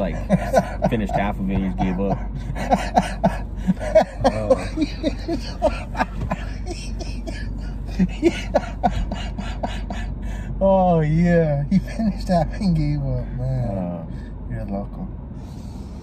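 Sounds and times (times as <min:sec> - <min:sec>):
men laughing: 0:00.0 - 0:10.5, 0:11.7 - 0:12.6.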